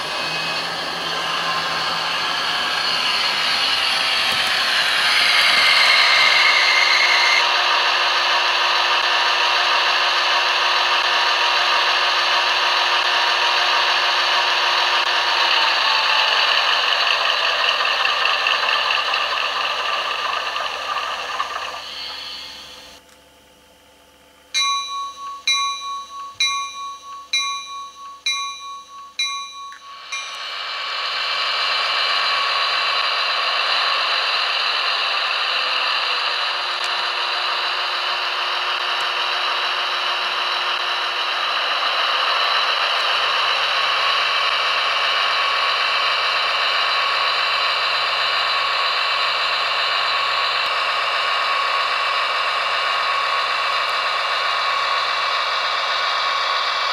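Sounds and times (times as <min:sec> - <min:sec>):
simulated diesel engine sound: 0:00.0 - 0:56.9
bell ringing from small speaker: 0:24.6 - 0:30.8.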